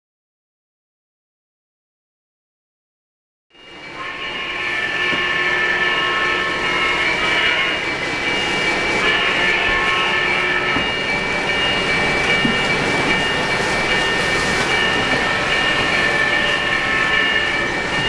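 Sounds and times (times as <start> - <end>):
high steady tones: 3.6 - 18.0
model train rolling rumble: 3.8 - 18.0.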